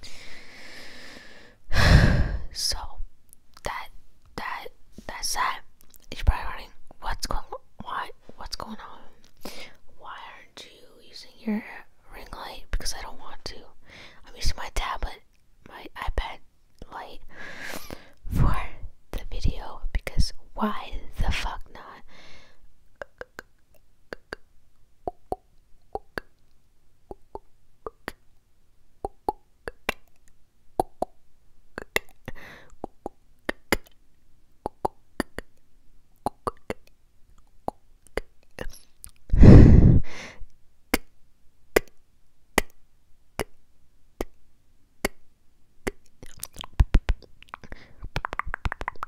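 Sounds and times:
wet mouth clicks and pops: 23.0 - 24.4, 25.0 - 26.5, 27.1 - 28.2, 29.0 - 31.2, 31.8 - 34.0, 34.6 - 39.3, 41.8 - 42.0, 42.6 - 42.8, 44.2 - 44.4, 45.0 - 45.2, 45.8 - 49.0.

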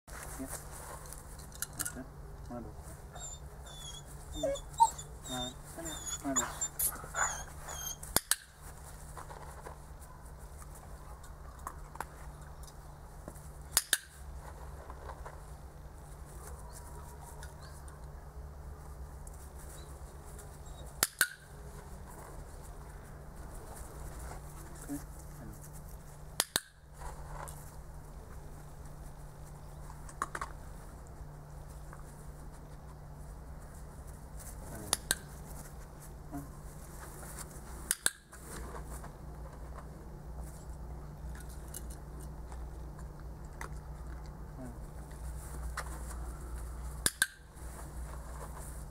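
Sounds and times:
steady low hum: 0.1 - 48.9.

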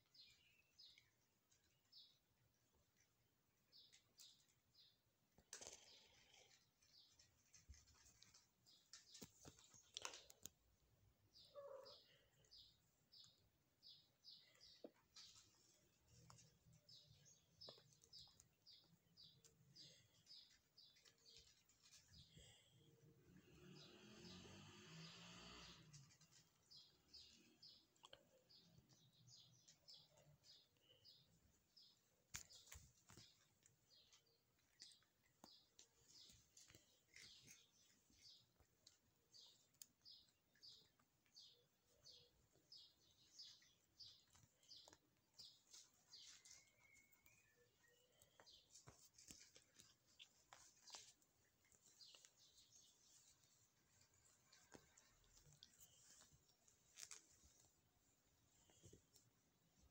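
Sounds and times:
faint high-pitched chirps: 11.4 - 24.5, 34.8 - 51.1.

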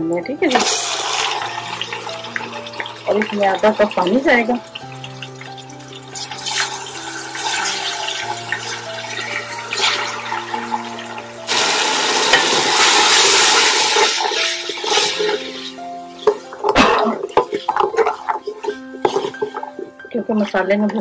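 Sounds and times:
water poured into hot oil: 0.5 - 20.0
oil hissing and sizzling: 0.5 - 20.1.

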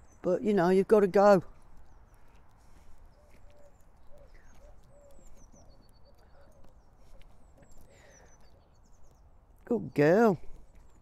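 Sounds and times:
small birds chirping: 0.0 - 11.0
bird trill: 1.8 - 9.3
pigeon cooing: 3.1 - 7.3.

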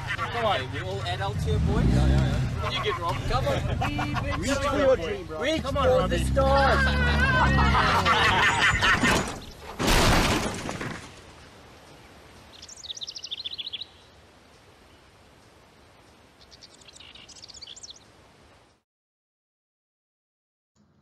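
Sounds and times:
car crashing: 6.6 - 11.2
bird chirping: 11.8 - 18.8.

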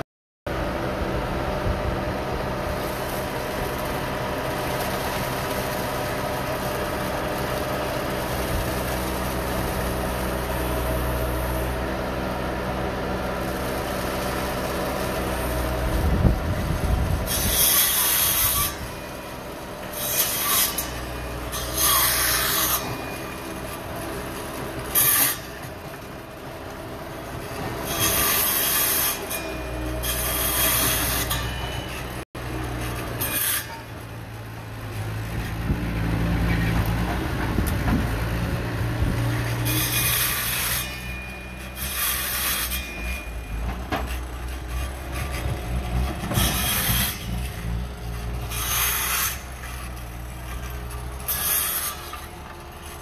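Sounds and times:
diesel engine running: 0.5 - 53.0
harsh scraping: 13.2 - 53.0.

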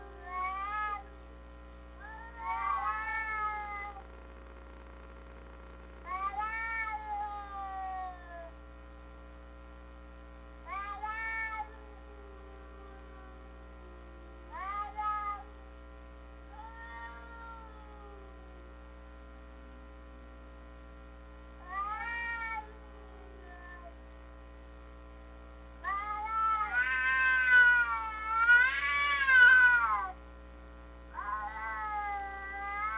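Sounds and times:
steady electrical hum: 0.0 - 32.9
cat meowing: 2.0 - 4.0, 6.1 - 8.5, 16.6 - 18.2, 21.7 - 22.7, 23.4 - 23.9, 25.8 - 30.2, 31.2 - 32.9.

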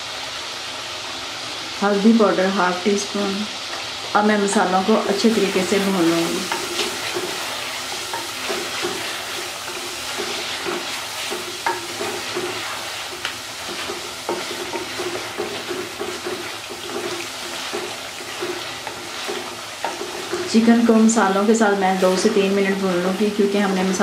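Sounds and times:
chicken sizzling in hot oil: 0.0 - 24.0
wooden spatula scraping pot: 5.1 - 23.4
spatula knocking against pot: 10.6 - 12.5.

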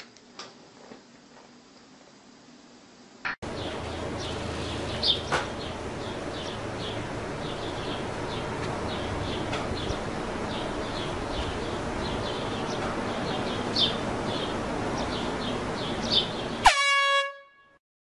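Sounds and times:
small birds chirping: 3.5 - 16.6
air horn blast: 16.6 - 17.8.

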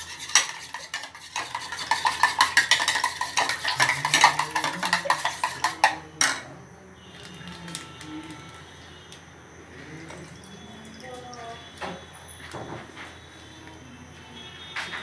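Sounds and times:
spoon clinking against ceramic bowl: 0.0 - 6.5
spoon knocking bowl: 0.4 - 6.4.

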